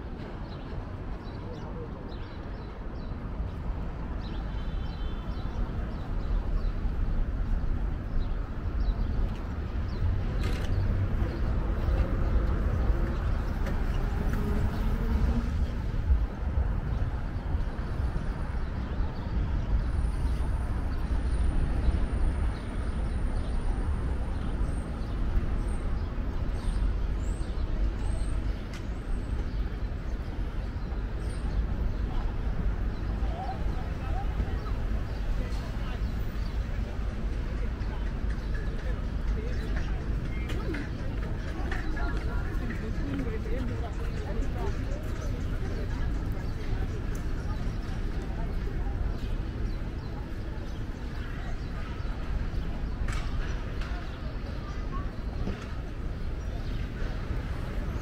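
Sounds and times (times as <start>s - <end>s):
traffic rumble: 0.0s - 58.0s.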